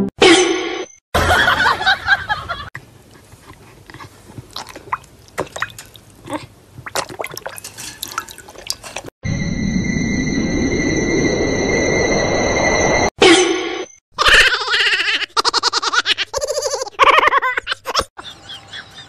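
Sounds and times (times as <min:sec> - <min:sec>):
dog lapping water: 0:03.2 - 0:09.1
water dripping: 0:04.5 - 0:09.1.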